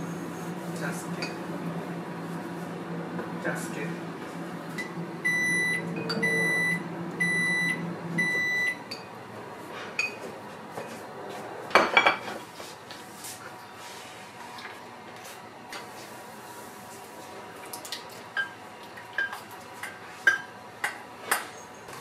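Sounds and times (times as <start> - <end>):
appliance electric hum: 0.0 - 22.0.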